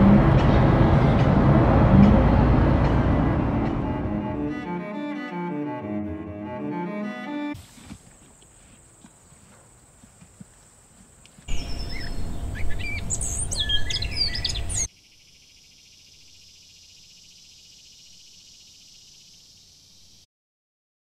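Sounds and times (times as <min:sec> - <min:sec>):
loud low rumble: 0:00.0 - 0:04.7
small birds chirping: 0:08.0 - 0:20.2.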